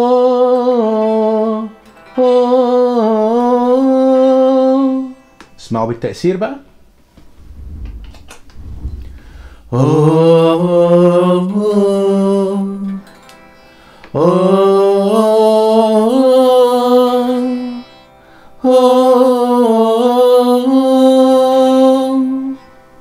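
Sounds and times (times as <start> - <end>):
man singing with vocal effect: 0.0 - 5.2, 9.2 - 13.1, 14.1 - 17.9, 18.6 - 22.6.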